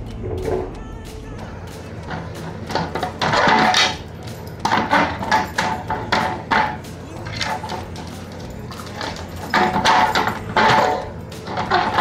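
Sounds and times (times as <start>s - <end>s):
plastic bottles clattering on wood: 2.1s - 4.0s, 4.6s - 12.0s.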